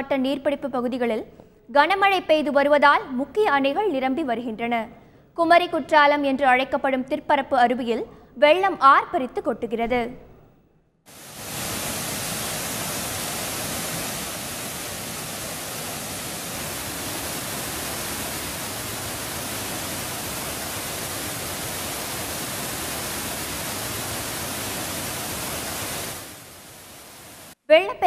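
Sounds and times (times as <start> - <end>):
waterfall roaring: 11.1 - 27.6.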